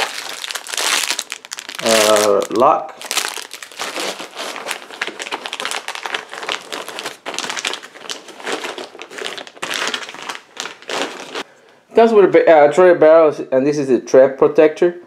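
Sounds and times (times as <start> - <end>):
plastic bags crinkling: 0.0 - 11.5.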